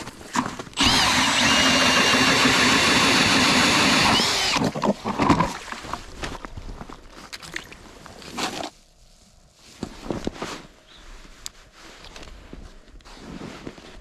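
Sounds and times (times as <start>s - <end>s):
power ice auger drilling: 0.4s - 5.0s.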